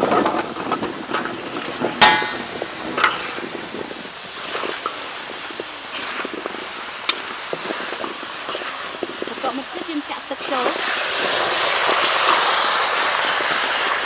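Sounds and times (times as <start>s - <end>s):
ringing metal clank: 2.0s - 3.2s
metal spatula scraping a wok: 2.0s - 3.5s.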